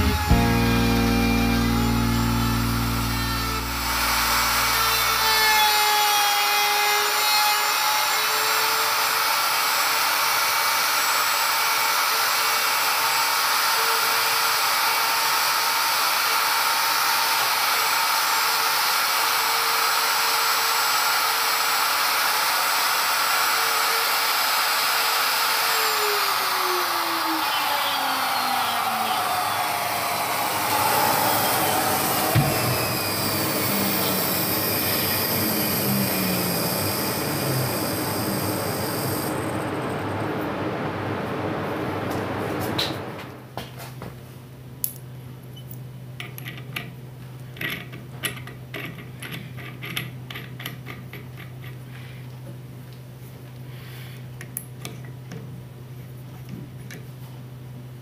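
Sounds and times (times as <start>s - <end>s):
low steady hum: 0.0s - 5.3s, 29.3s - 43.5s
router motor whining: 0.0s - 40.3s.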